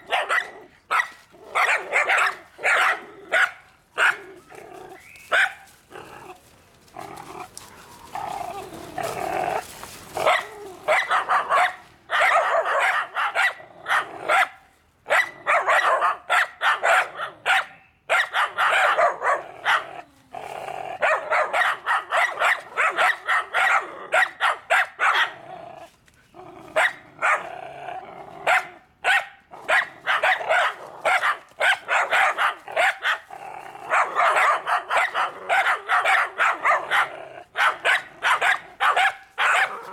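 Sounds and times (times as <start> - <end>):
dog barking fast: 0.0 - 4.2, 5.3 - 5.6, 10.2 - 19.9, 21.0 - 25.4, 28.5 - 33.2, 33.9 - 39.9.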